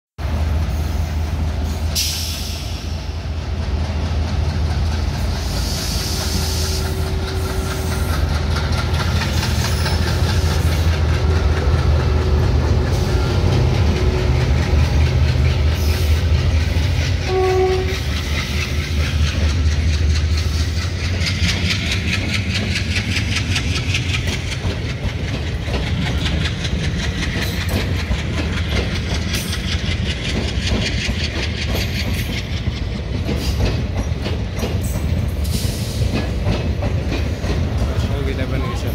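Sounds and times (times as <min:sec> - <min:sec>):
train rumbling past: 0:00.2 - 0:38.9
wheels clattering over rail joints: 0:03.7 - 0:38.9
train horn toot: 0:17.2 - 0:18.2.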